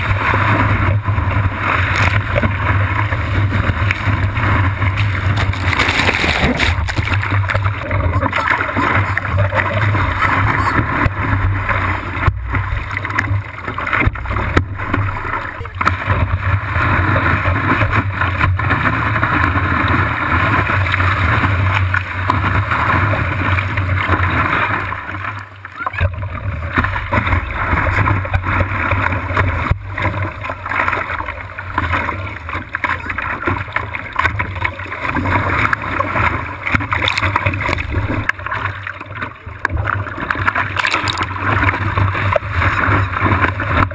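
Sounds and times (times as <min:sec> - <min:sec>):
low rumble: 0:00.0 - 0:25.1
surf water rushing and splashing: 0:00.0 - 0:43.9.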